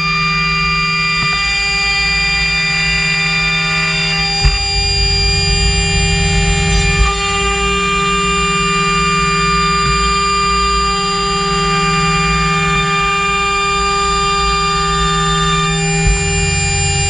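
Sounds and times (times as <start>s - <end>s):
router spindle whining: 0.0s - 17.0s
sharp knock: 4.4s - 7.2s.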